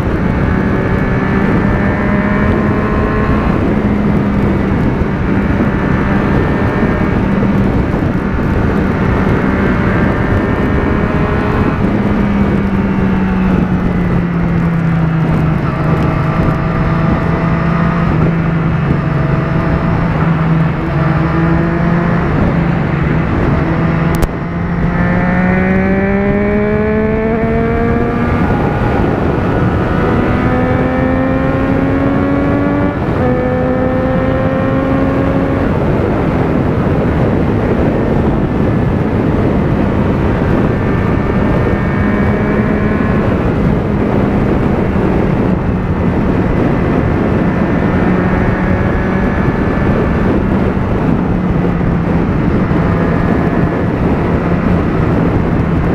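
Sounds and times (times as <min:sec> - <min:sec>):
motorcycle engine: 0:00.0 - 0:55.9
wind rush: 0:00.0 - 0:55.9.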